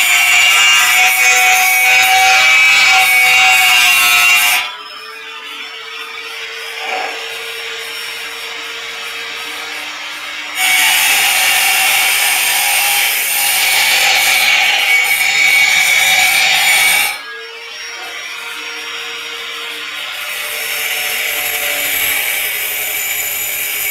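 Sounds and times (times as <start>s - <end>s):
angle grinder grinding metal: 0.0s - 23.9s
grinder running freely: 0.0s - 23.9s.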